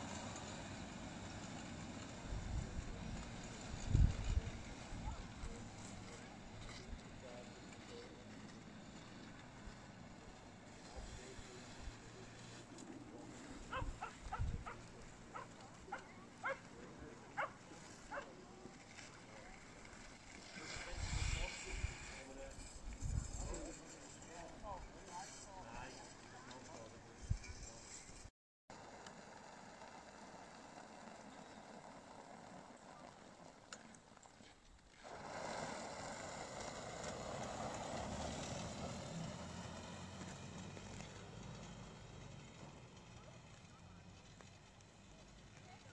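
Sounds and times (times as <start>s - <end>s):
tyres hissing on snow: 5.6s - 13.7s, 18.8s - 22.8s, 35.0s - 42.3s
dog barking: 13.7s - 16.6s, 17.4s - 18.3s.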